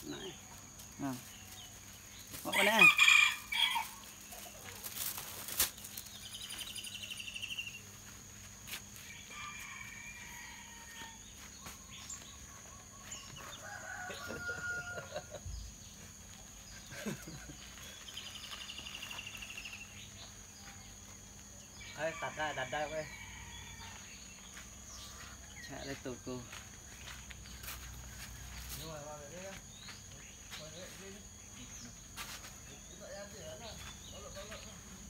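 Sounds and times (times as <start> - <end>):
rooster calling: 2.5 - 4.0.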